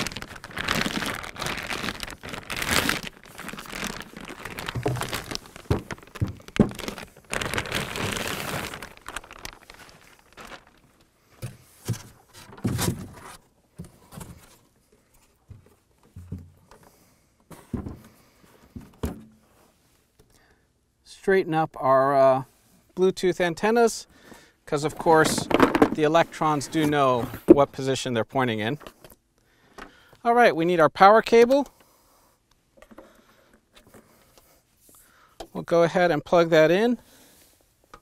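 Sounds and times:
plastic bag rustling: 0:00.0 - 0:13.4, 0:24.8 - 0:27.7.

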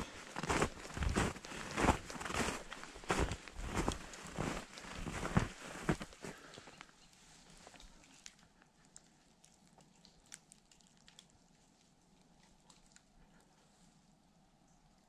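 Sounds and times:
small ticks: 0:06.5 - 0:13.6.

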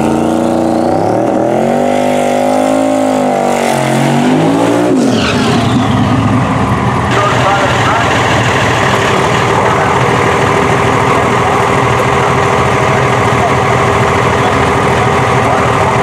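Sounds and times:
diesel truck engine idling: 0:05.7 - 0:16.0.

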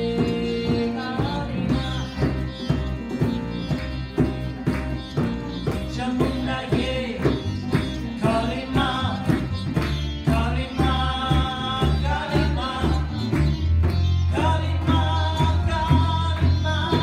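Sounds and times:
woman singing: 0:00.0 - 0:02.8
acoustic guitar: 0:00.0 - 0:17.0
harmonium: 0:00.0 - 0:17.0
tabla drumming: 0:00.0 - 0:17.0.

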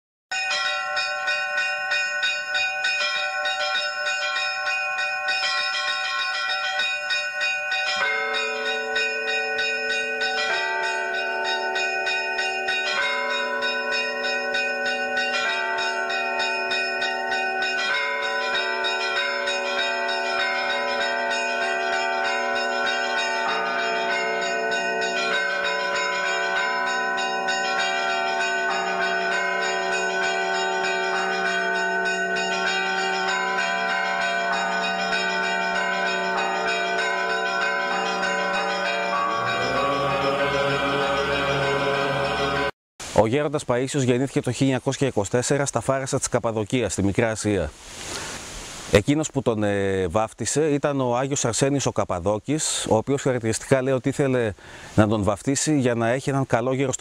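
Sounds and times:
bells ringing: 0:00.3 - 0:42.8.

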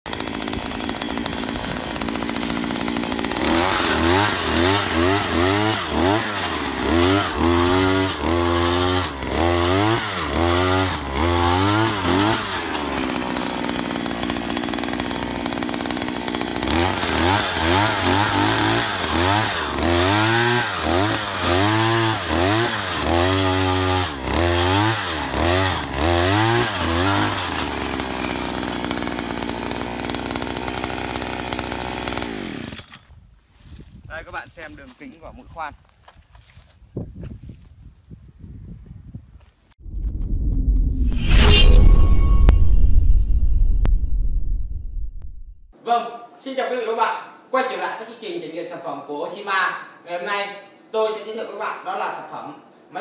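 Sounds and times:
two-stroke engine revving: 0:00.1 - 0:33.0.

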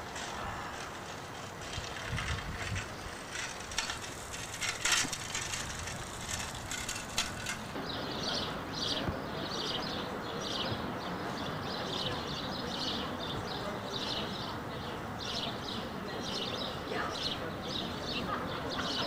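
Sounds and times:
bicycle freewheel clicking: 0:00.0 - 0:07.8.

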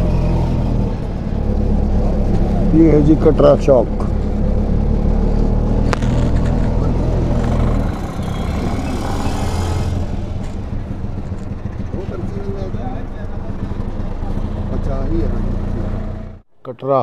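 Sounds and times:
passing vehicle rush: 0:00.0 - 0:16.4
vehicle engine running: 0:00.0 - 0:16.4.

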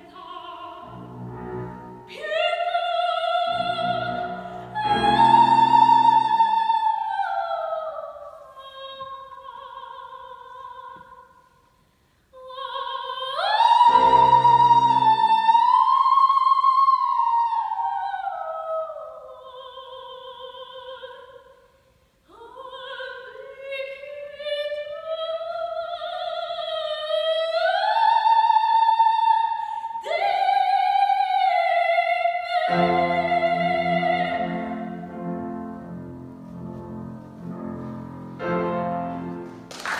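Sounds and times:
grand piano: 0:00.0 - 0:10.6, 0:13.3 - 0:20.4, 0:32.6 - 0:39.9
soprano singing opera: 0:00.0 - 0:11.4, 0:12.3 - 0:21.7, 0:22.3 - 0:39.4.

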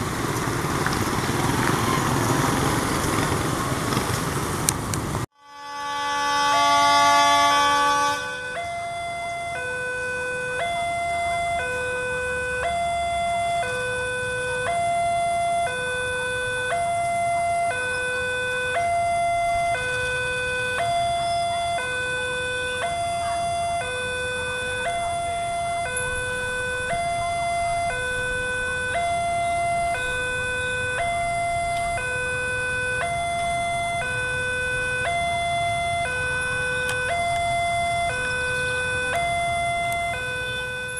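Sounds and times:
horn chord: 0:05.3 - 0:09.4
level crossing warning alarm: 0:05.3 - 0:40.9.

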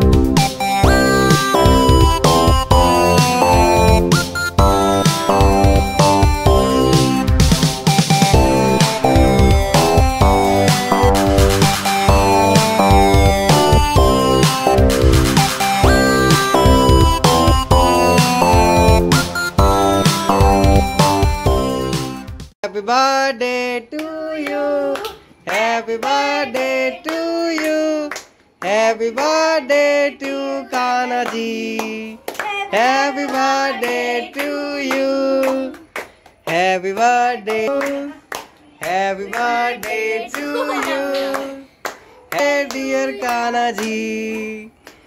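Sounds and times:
high voice singing: 0:22.6 - 0:35.8, 0:36.5 - 0:41.7
hand-clapping: 0:23.9 - 0:29.4, 0:30.2 - 0:45.0.

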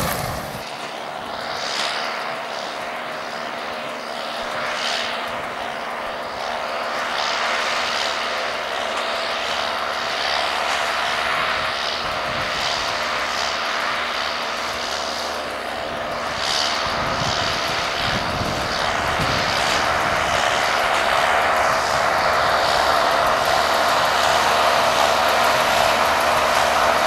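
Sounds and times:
tractor diesel engine running: 0:00.0 - 0:01.5, 0:08.1 - 0:27.0
square baler working: 0:00.0 - 0:27.0.

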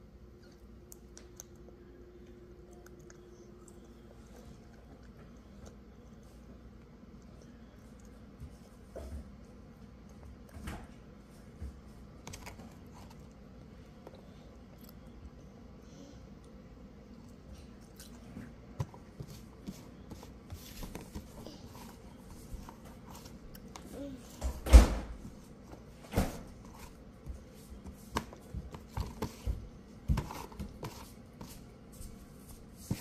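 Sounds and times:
toddler chewing and smacking: 0:00.3 - 0:08.9, 0:16.4 - 0:24.4.

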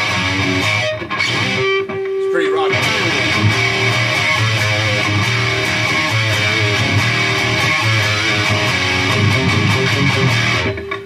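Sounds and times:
distorted electric guitar riff: 0:00.0 - 0:11.0.

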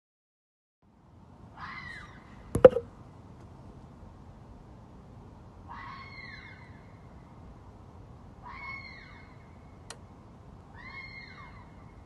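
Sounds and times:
fox screaming: 0:08.4 - 0:09.3.

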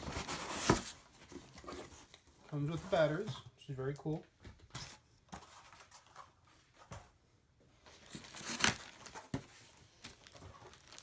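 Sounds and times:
packaging rustling: 0:07.9 - 0:11.0.

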